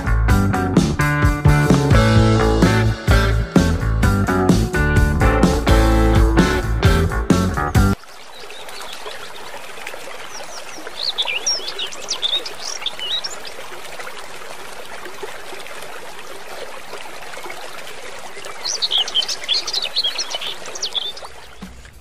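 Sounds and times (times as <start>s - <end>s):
guitar tune: 0.0s - 8.0s
trickling stream: 5.6s - 22.0s.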